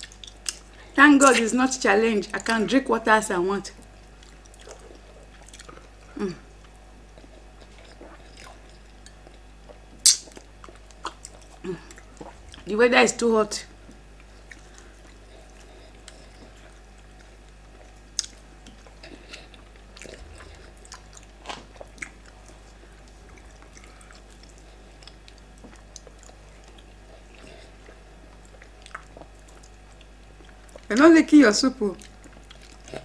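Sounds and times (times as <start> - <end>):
mouth smacks and chewing: 0.0 - 1.4, 4.0 - 12.7, 13.9 - 30.9, 32.0 - 33.0.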